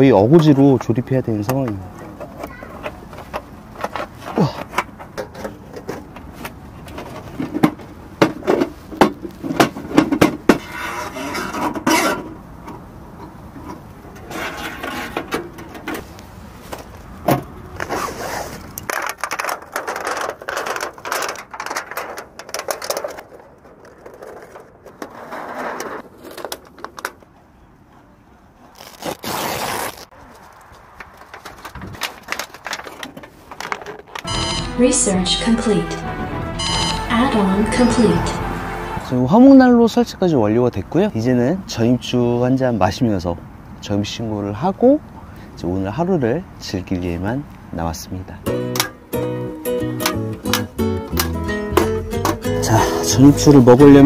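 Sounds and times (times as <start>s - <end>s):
sheet metal scraping and clanking: 13.6s - 16.1s.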